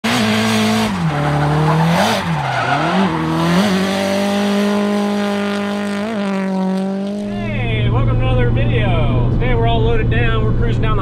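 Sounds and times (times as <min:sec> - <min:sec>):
car engine revving: 0:00.0 - 0:11.0
tyres squealing: 0:00.9 - 0:03.8.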